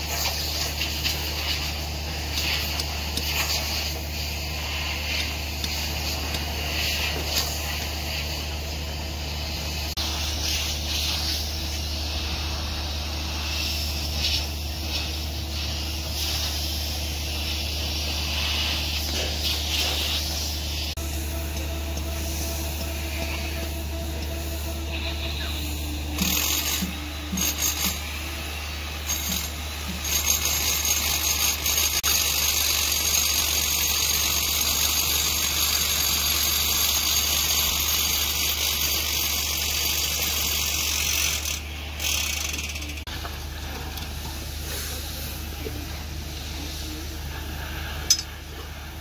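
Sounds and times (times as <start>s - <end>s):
broad hiss: 0.0s - 42.0s, 43.1s - 49.0s
low hum: 3.6s - 30.0s.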